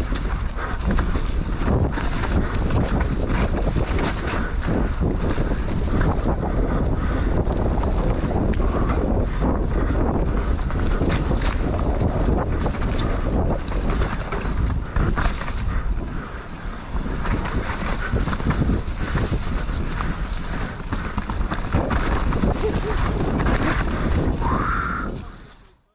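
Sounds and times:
wind buffeting microphone: 0.0s - 25.6s
bike rattling over rough trail: 0.0s - 25.8s.

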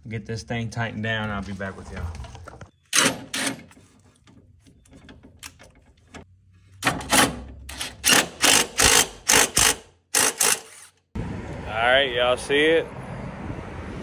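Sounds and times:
wrench ratcheting bursts: 7.7s - 11.0s.

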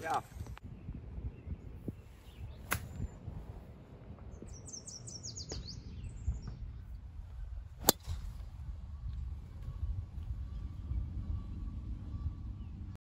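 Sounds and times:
golf club striking ball: 2.6s - 3.0s, 7.8s - 8.4s.

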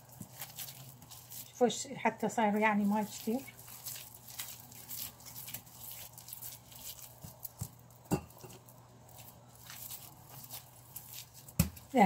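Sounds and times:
dough squishing and tapping: 0.0s - 1.6s, 2.2s - 12.0s
dough knocked on surface: 11.6s - 11.8s.

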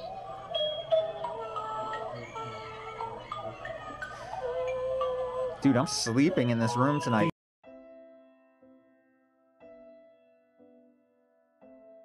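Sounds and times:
slow piano music: 7.0s - 12.0s.

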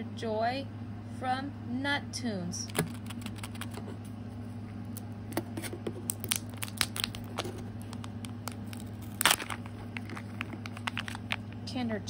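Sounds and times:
plastic wrapper crinkling: 2.7s - 3.8s, 4.9s - 11.6s.

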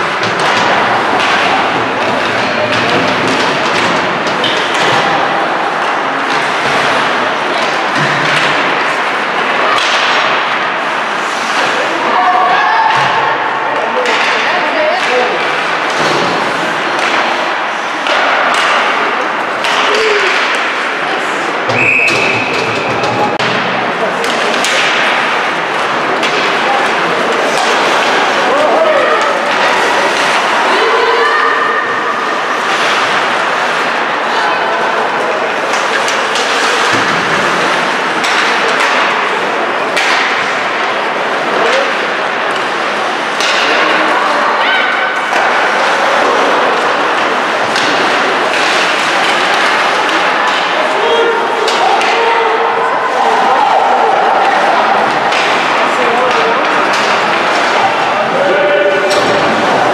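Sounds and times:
sticks and puck knocking: 0.0s - 5.2s, 38.2s - 39.3s, 39.9s - 40.5s
hockey sticks and puck clacking: 0.0s - 59.9s
skates and arena noise: 0.0s - 59.9s.

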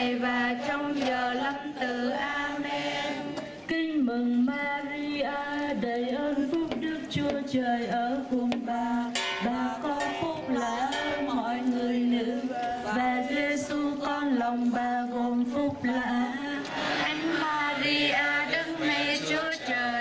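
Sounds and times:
group chanting prayer: 0.0s - 3.7s, 16.1s - 20.0s.

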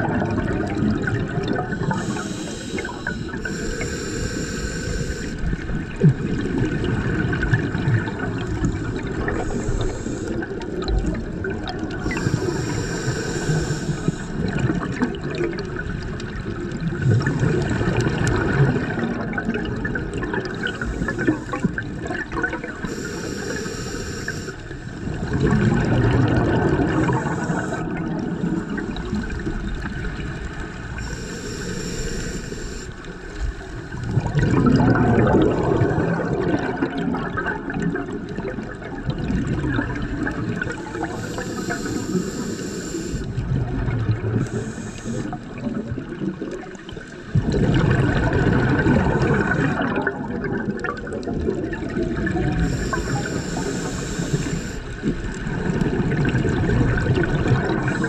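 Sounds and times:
gurgling exhaust bubbles: 0.0s - 31.9s, 32.9s - 58.0s
regulator hiss on inhale: 1.5s - 5.9s, 8.0s - 10.8s, 11.8s - 14.8s, 20.4s - 34.3s, 40.4s - 43.5s, 44.2s - 45.6s, 52.3s - 58.0s.

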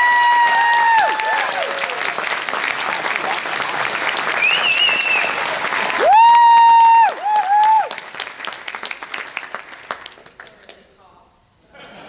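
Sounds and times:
loud high whoop: 0.0s - 2.1s, 4.4s - 8.0s
audience applauding: 0.0s - 10.8s
faint whistle: 4.4s - 5.4s.

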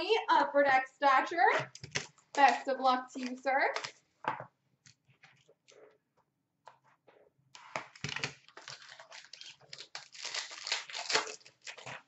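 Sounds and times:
foil wrapper tearing and crinkling: 8.0s - 12.0s.

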